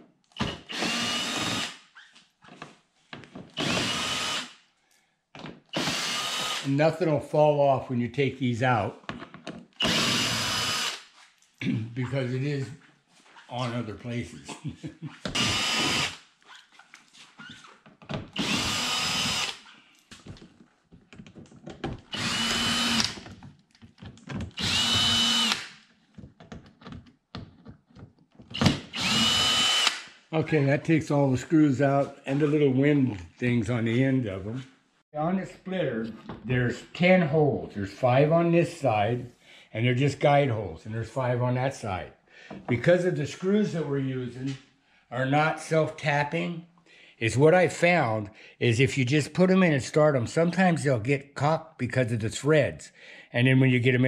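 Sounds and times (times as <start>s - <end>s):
cordless drill motor whine: 0.5s - 1.7s, 3.6s - 4.5s, 5.8s - 6.7s, 9.8s - 11.0s, 15.4s - 16.1s, 18.4s - 19.6s, 22.1s - 23.2s, 24.6s - 25.6s, 28.6s - 30.0s.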